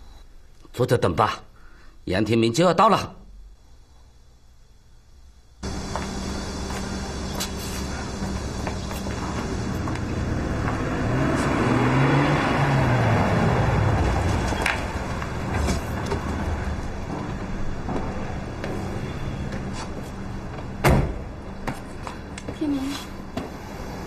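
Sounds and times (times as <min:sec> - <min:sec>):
vehicle engine and road noise: 0:05.6 - 0:24.0.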